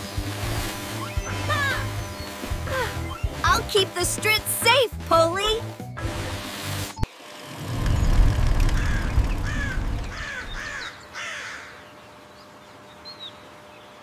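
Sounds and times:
low rumble: 7.6 - 10.8
crows cawing: 8.7 - 11.9.

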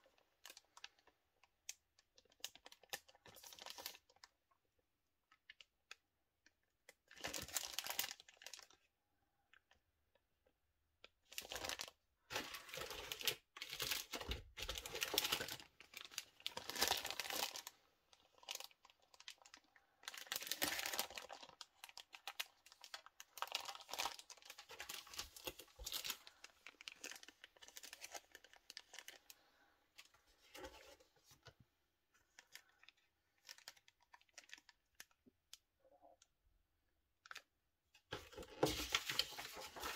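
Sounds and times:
plastic bags crinkling: 7.0 - 8.9, 11.2 - 29.4, 32.3 - 35.2, 38.1 - 39.9.

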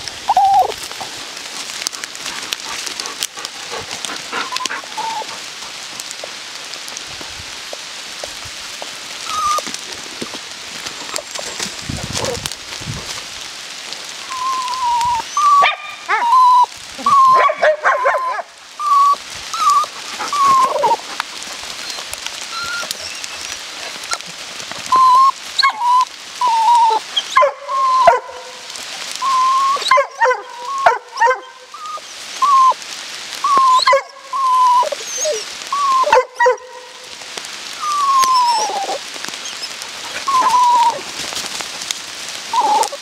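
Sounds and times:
dogs whining: 0.3 - 1.1, 4.4 - 5.4, 9.2 - 9.8, 14.3 - 21.0, 21.8 - 24.2, 24.9 - 28.2, 29.2 - 32.8, 33.4 - 36.7, 37.8 - 41.1, 42.5 - 43.0.

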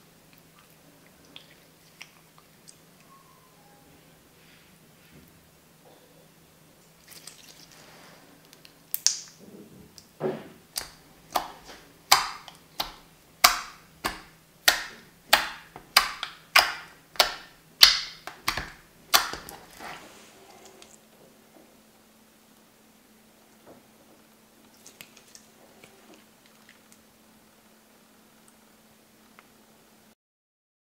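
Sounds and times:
wet slime pops: 8.9 - 9.4, 10.8 - 19.8.

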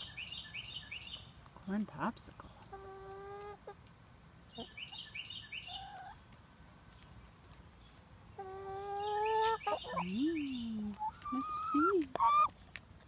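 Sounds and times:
songbird chirping: 0.0 - 12.8
hen clucking softly: 5.7 - 6.2, 8.4 - 10.2, 10.9 - 12.5.

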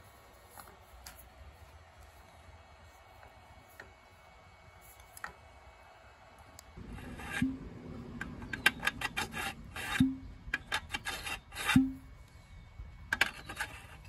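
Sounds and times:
sharp metal knocks: 6.8 - 11.0
metal coupling scraping and clicking: 6.8 - 12.1, 13.1 - 14.0.

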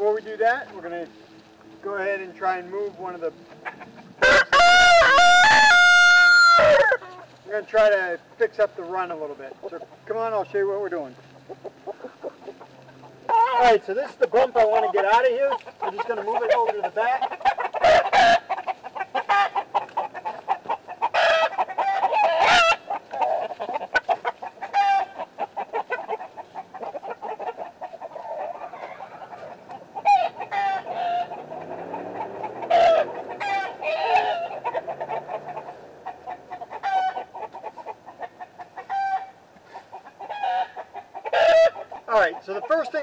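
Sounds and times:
chickens clucking: 0.0 - 43.0.

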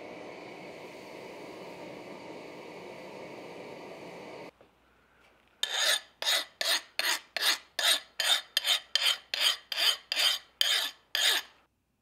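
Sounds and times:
file rasping on steel blade: 5.6 - 11.6.

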